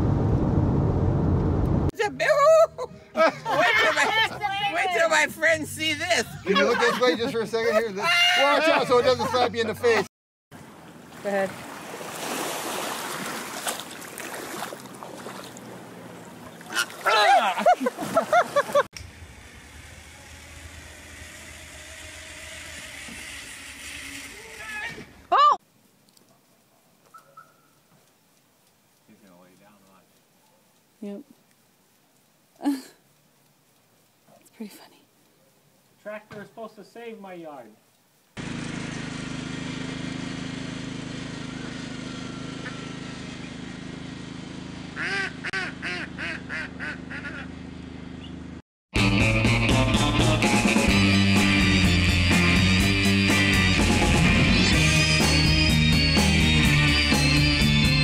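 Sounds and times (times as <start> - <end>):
low background rumble: 0.0 - 6.2, 19.0 - 23.6
lawn tractor engine droning: 19.0 - 25.3, 38.4 - 58.0
flamingo honking: 27.1 - 27.9, 45.0 - 47.6
ducks quacking: 45.0 - 47.6.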